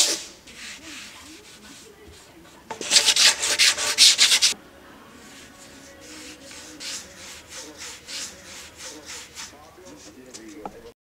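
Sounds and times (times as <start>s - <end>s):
wooden board sanded by hand: 2.7s - 4.6s, 5.3s - 10.4s.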